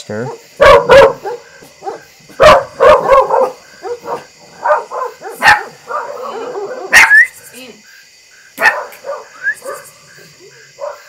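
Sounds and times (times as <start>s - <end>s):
dogs barking: 0.1s - 7.2s, 8.6s - 10.0s, 10.7s - 11.0s.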